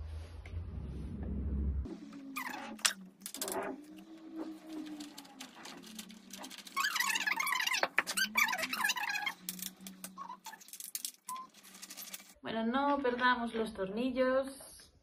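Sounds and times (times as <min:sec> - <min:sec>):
low hum: 0:00.0 - 0:10.6
screws squeaking: 0:02.1 - 0:12.4.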